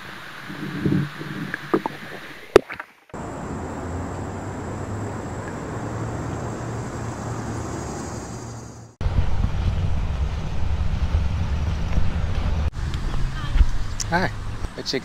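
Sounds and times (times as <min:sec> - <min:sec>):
low hum: 0:03.2 - 0:14.8
steady rushing outdoor noise: 0:03.2 - 0:15.0.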